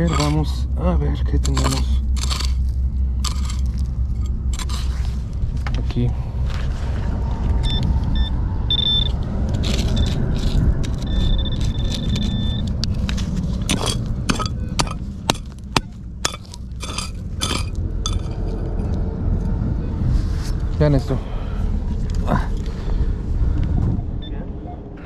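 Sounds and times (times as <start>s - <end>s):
digging tool scraping gravel: 0.0s - 0.6s, 1.3s - 5.2s, 9.5s - 18.5s
steady low rumble: 0.0s - 25.0s
metal detector beeps: 7.6s - 9.2s, 11.0s - 12.7s
metal knocking on stone: 13.7s - 18.4s.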